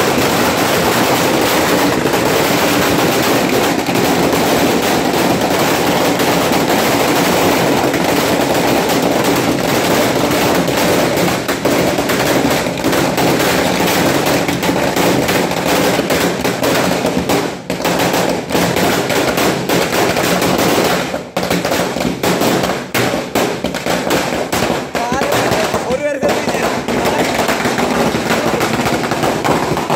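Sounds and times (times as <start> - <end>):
firecrackers exploding: 0.0 - 29.9.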